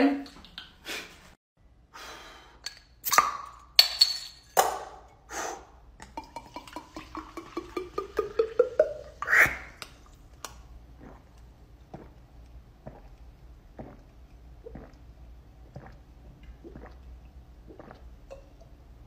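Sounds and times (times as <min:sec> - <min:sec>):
liquid glugging into a glass: 0:06.0 - 0:09.8, 0:11.0 - 0:18.8
percussive mouth sounds: 0:06.1 - 0:18.5
faint gulps: 0:10.9 - 0:18.8.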